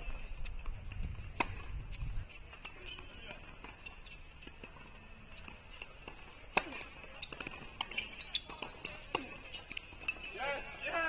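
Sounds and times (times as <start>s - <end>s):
racket hitting tennis ball: 0.9s - 1.7s, 6.0s - 10.3s.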